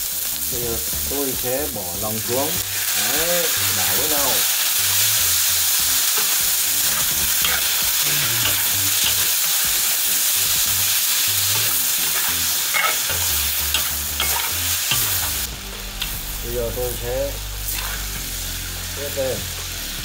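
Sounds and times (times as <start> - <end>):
food sizzling in a wok: 0.0 - 20.0
metal spatula scraping a pan: 6.1 - 9.4, 11.5 - 15.4, 17.7 - 18.1.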